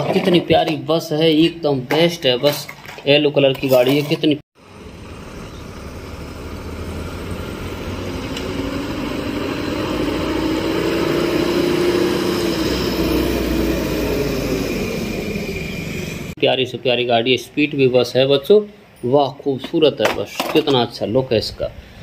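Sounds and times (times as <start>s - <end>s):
bus driving past: 4.6s - 16.4s.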